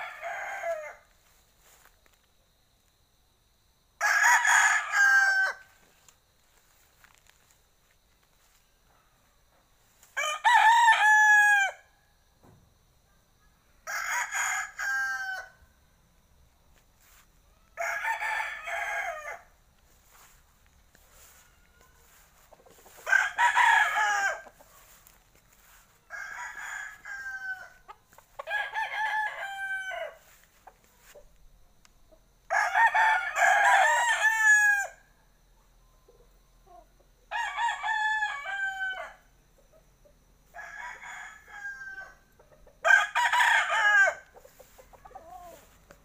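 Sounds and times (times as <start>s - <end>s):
roosters crowing: 0.0s - 1.1s, 4.0s - 6.0s, 10.1s - 11.9s, 13.8s - 15.7s, 17.7s - 31.1s, 32.5s - 35.0s, 37.3s - 39.3s, 40.5s - 45.9s.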